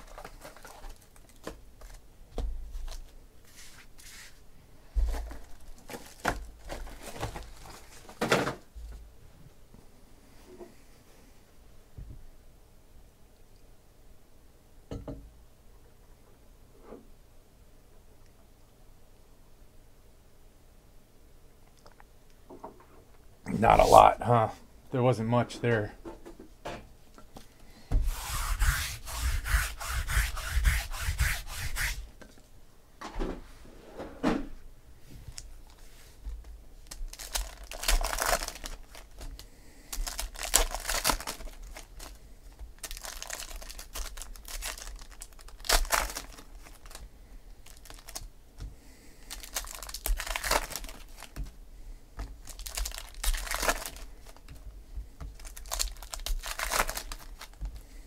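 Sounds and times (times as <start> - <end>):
foil wrappers tearing and crinkling: 0.0 - 2.0, 5.1 - 8.2, 36.8 - 42.2, 42.8 - 47.0, 47.6 - 48.3, 49.2 - 51.5, 52.2 - 54.6, 55.3 - 57.8.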